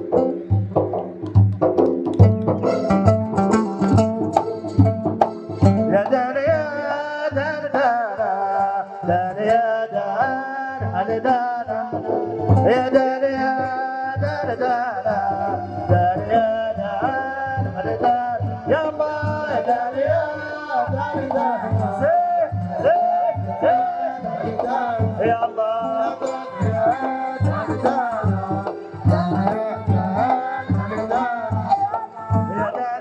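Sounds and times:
hand drums beating: 0.0s - 33.0s
wavering melody: 22.6s - 32.8s.

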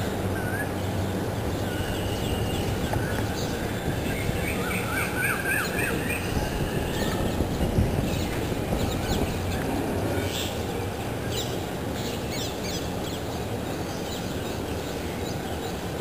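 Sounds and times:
bird wavy whistle: 1.6s - 7.4s.

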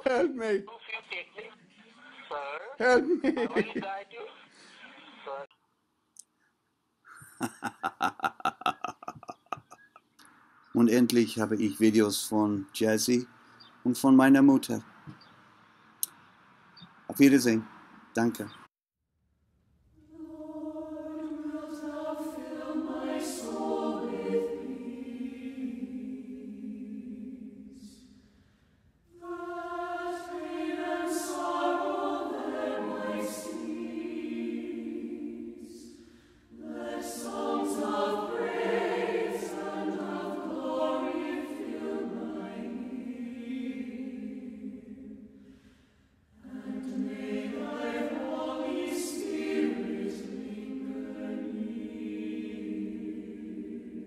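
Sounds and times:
choir singing slowly: 7.3s - 15.4s, 16.8s - 18.5s, 20.0s - 28.5s, 29.1s - 54.0s.

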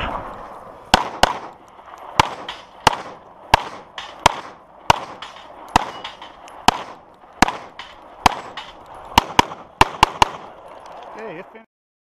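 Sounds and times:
handgun shots echoing: 0.9s - 1.6s, 2.2s - 10.5s.

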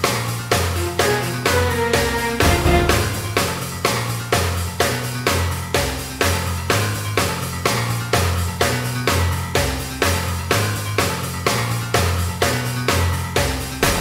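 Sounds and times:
steady drum beat: 0.7s - 4.7s
bass line: 0.8s - 4.1s.

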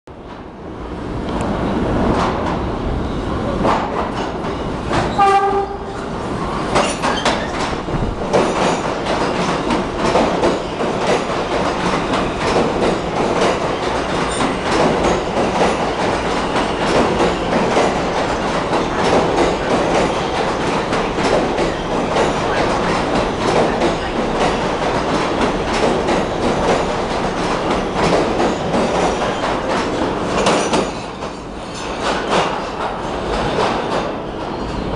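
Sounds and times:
subway train rumble: 0.1s - 34.9s
wheel clatter over rail joints: 3.4s - 34.9s
subway train horn blast: 5.1s - 6.2s.

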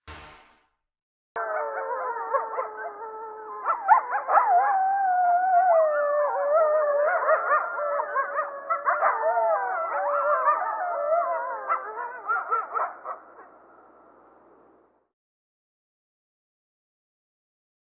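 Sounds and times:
dogs howling in chorus: 1.4s - 13.2s.

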